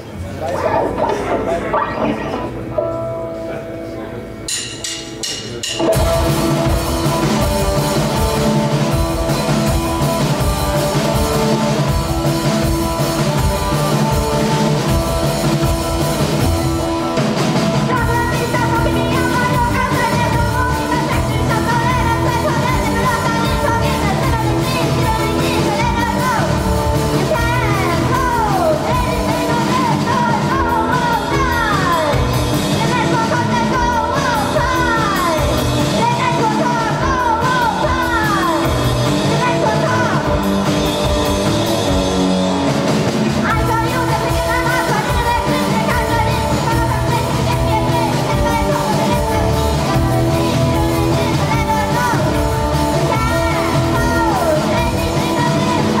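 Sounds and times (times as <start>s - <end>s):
live rock band playing: 0.0s - 56.0s
person singing: 17.1s - 40.6s, 43.4s - 56.0s.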